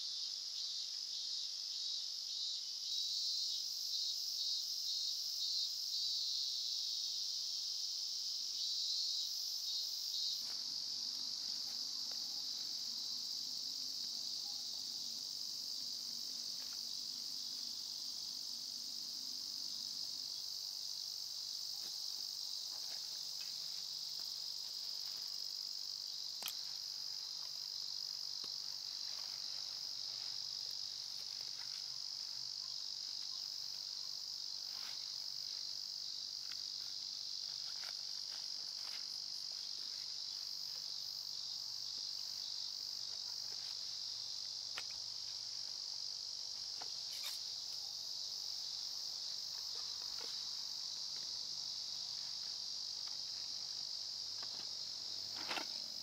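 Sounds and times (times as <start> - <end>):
insect chorus drone: 0.0 - 56.0
backpack straps clicking and rustling: 55.3 - 55.8.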